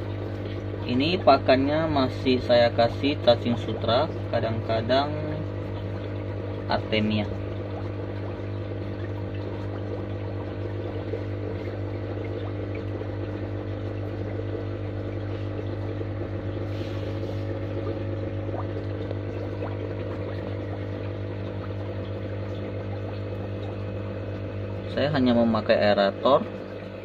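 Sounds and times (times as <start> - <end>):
air bubbling in water: 0.0 - 27.0
air pump humming: 0.0 - 27.0.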